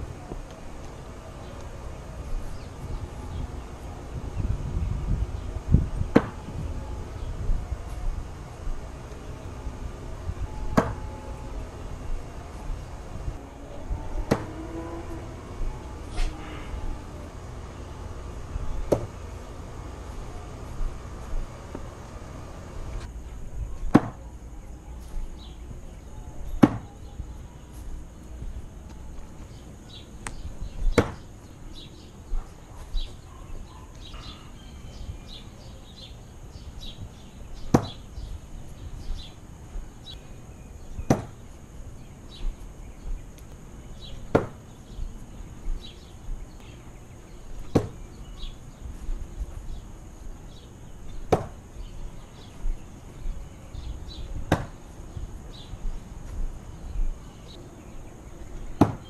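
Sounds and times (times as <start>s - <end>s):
knife striking wooden target: 41.1s - 41.4s.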